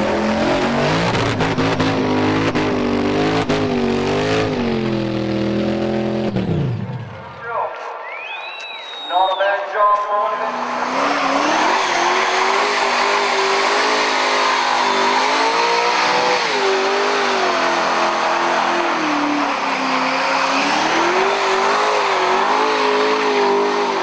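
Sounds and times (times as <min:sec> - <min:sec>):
car engine revving: 0:00.0 - 0:07.4, 0:10.2 - 0:24.0
tyres screeching: 0:10.5 - 0:24.0.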